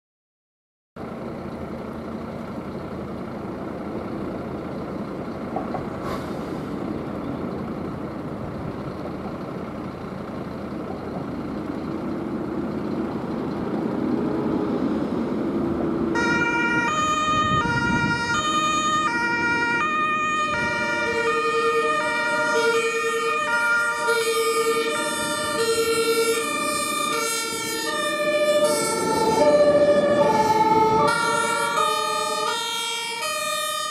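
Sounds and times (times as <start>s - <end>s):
heavy vehicles rumbling: 1.0s - 33.9s
two-tone siren: 16.1s - 33.9s.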